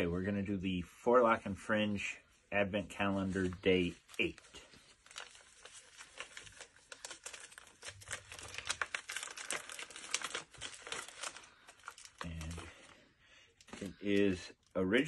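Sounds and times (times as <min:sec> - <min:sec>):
gift wrapping crinkling and tearing: 0:03.0 - 0:15.0.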